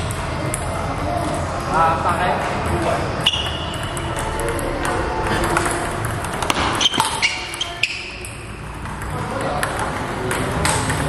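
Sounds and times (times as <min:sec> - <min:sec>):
table tennis ball clicking: 0:03.3 - 0:11.0.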